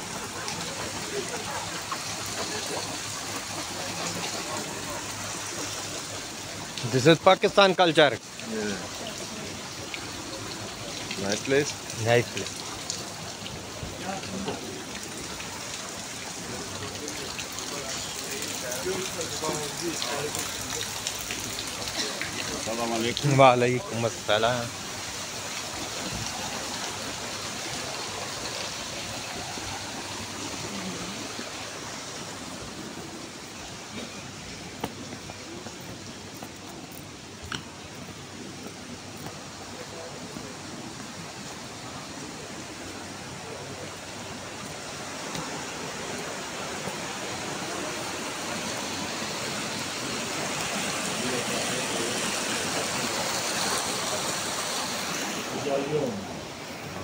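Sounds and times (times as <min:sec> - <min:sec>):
stream rushing over rocks: 0:00.0 - 0:57.0
water running in a fountain: 0:00.0 - 0:57.0.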